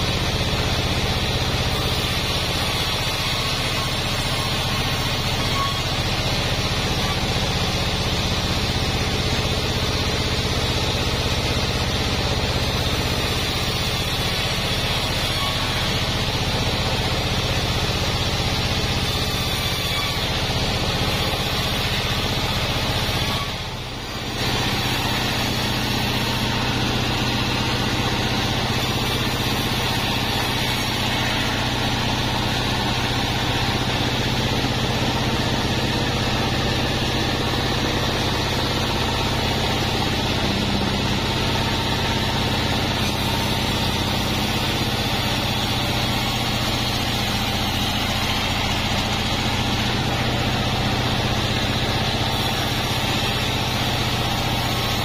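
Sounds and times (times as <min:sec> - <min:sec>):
band saw droning: 0:00.0 - 0:55.0.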